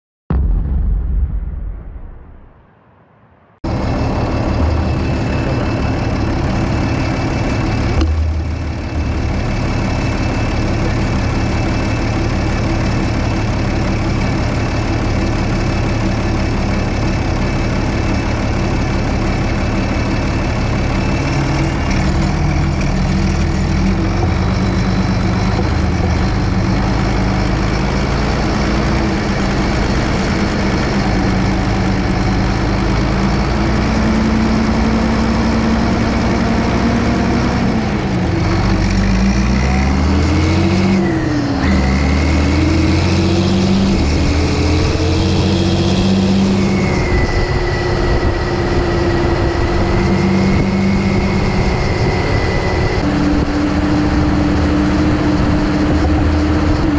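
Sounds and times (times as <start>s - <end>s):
boom: 0.3s - 3.7s
tractor diesel engine running: 3.6s - 56.9s.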